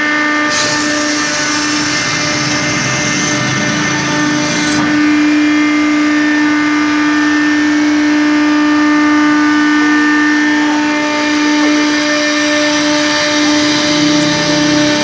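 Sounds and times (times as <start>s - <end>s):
high hiss: 0.5s - 4.9s
hydraulic winch humming: 0.5s - 5.2s, 12.0s - 15.0s.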